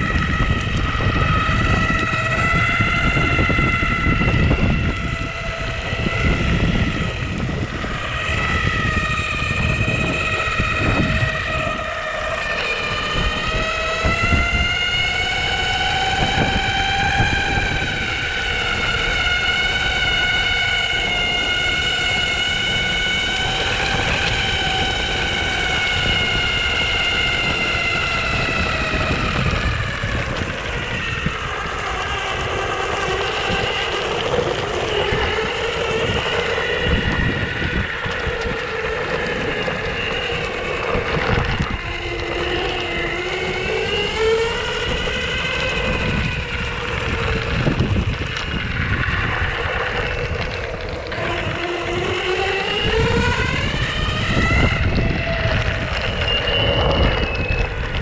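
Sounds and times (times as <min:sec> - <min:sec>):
electric motors whining: 0:00.0 - 0:58.0
low ride rumble: 0:00.0 - 0:58.0.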